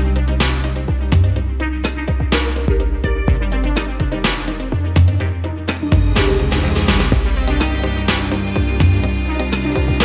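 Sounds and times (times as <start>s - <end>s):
electronic music: 0.0s - 10.0s.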